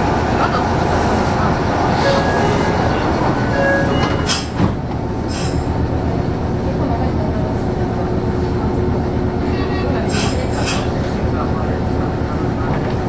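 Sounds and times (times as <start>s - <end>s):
train equipment hum and hiss: 0.0s - 13.0s
short air hisses: 5.3s - 5.6s.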